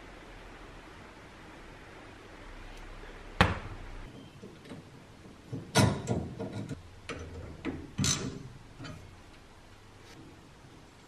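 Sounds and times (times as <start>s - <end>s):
metal parts knocking and clicking: 4.6s - 9.1s.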